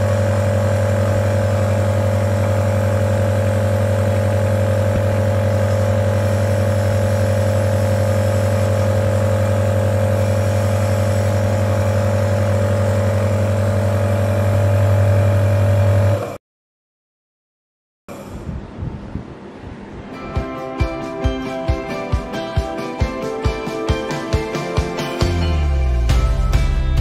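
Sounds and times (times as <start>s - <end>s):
nebulizer compressor humming: 0.0s - 16.3s.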